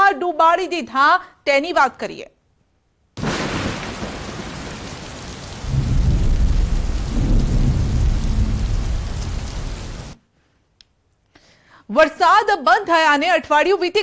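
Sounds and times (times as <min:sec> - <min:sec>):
heavy rain hissing: 0:03.2 - 0:10.2
thunder rumbling: 0:03.2 - 0:10.2.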